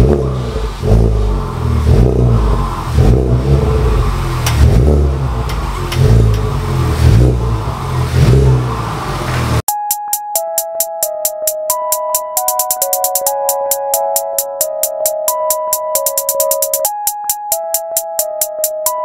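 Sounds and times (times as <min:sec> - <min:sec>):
car engine revving: 0:00.0 - 0:09.6
electronic synth music: 0:09.7 - 0:19.0.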